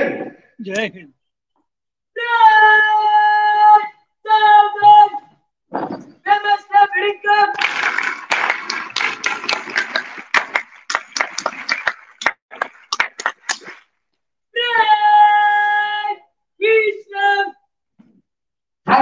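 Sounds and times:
crowd applauding: 7.6 - 13.8.

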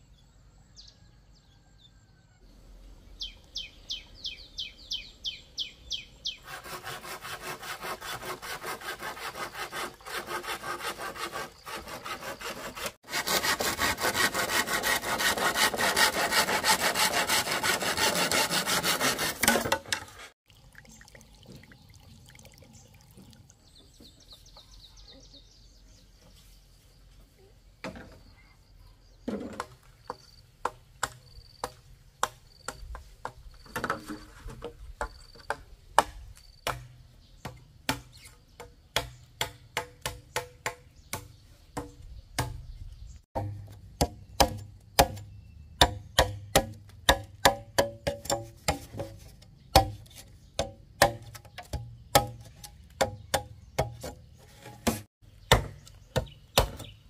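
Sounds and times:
hand tool striking: 45.8 - 56.9.

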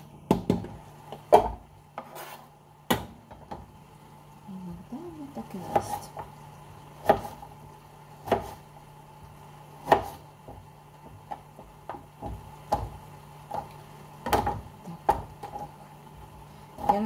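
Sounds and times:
knife slicing eggplant: 7.0 - 7.5, 8.1 - 8.7, 9.8 - 10.6.

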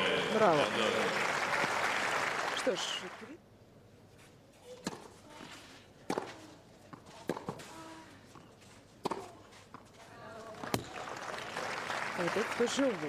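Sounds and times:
tennis ball hitting clay court: 4.7 - 11.0.

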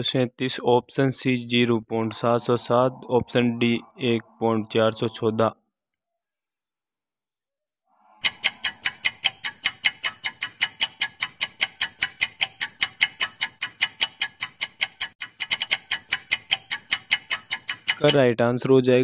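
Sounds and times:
quick clock ticks: 8.2 - 18.2.

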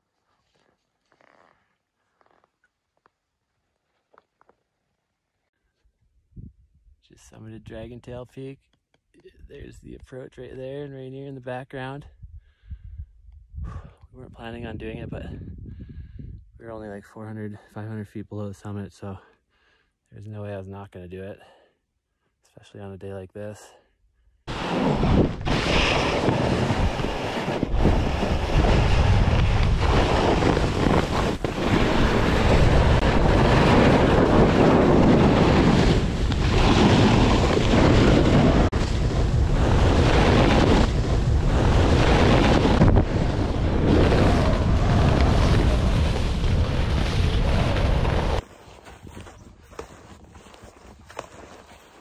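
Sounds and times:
wind rushing over microphone: 12.2 - 16.6, 24.5 - 48.4
skis running over firm snow: 24.6 - 52.0.

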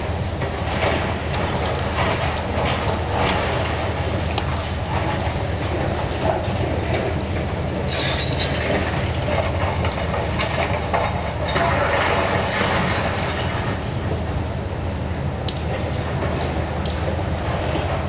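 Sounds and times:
diesel engine running: 0.0 - 18.0
concrete crunching and clattering: 0.1 - 13.9.

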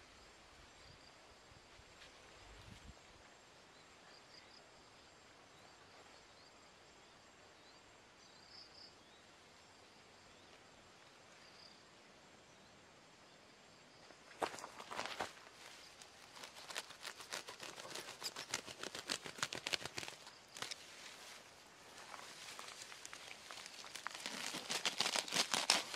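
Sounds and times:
soft rustles: 14.3 - 25.9.

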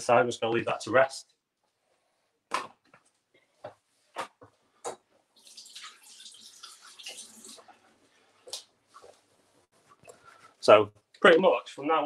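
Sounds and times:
water tap running: 5.4 - 7.7.

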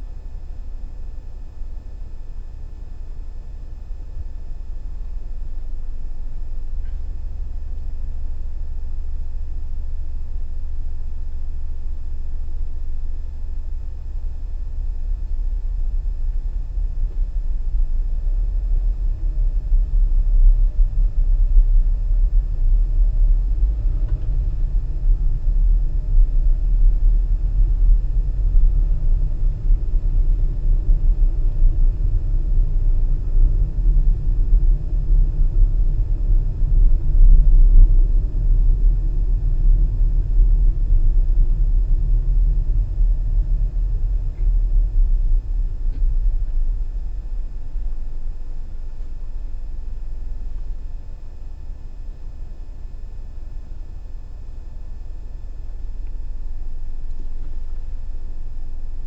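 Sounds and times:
car engine and road noise: 16.8 - 47.8.

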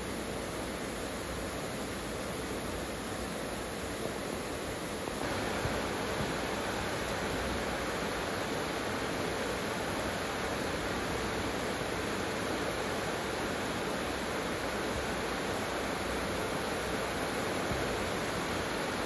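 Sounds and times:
heavy rain falling: 5.2 - 19.0.

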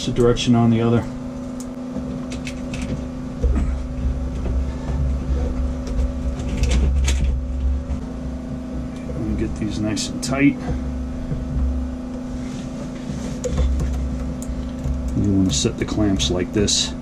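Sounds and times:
deep rumble: 0.0 - 17.0
steady low hum: 0.0 - 17.0
metallic clicks and knocks: 1.6 - 4.6.

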